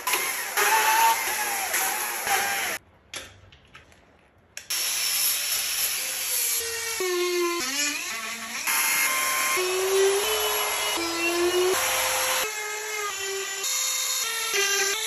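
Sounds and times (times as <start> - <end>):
chainsaw cutting wood: 0.0 - 2.8.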